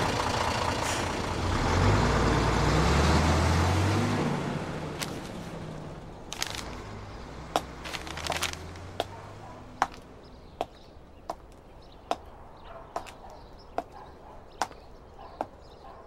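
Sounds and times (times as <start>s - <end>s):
low vehicle rumble: 0.0s - 15.6s
footsteps on pavement: 6.3s - 6.8s, 7.5s - 16.0s.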